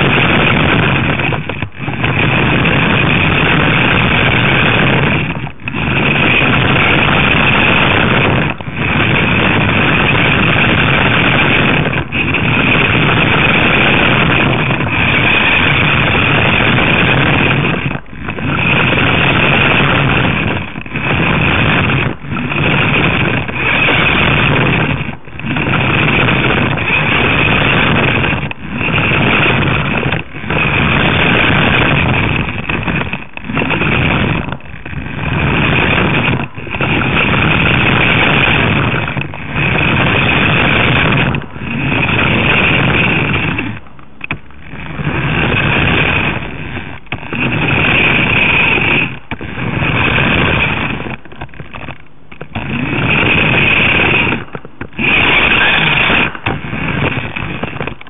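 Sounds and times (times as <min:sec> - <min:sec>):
toy car motor whining: 0:00.2 - 0:58.0.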